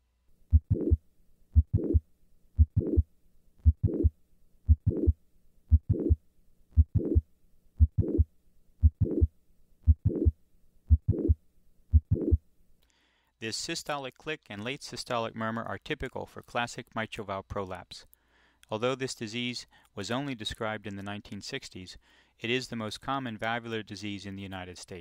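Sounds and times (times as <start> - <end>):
heart murmur: 0.5 - 1.0, 1.6 - 2.0, 2.6 - 3.0, 3.6 - 4.1, 4.7 - 6.2, 6.8 - 7.2, 7.8 - 9.3, 9.9 - 10.3, 10.9 - 12.4
heartbeat through stethoscope: 0.5 - 1.0, 1.6 - 2.0, 2.6 - 4.1, 4.7 - 6.2, 6.8 - 12.4.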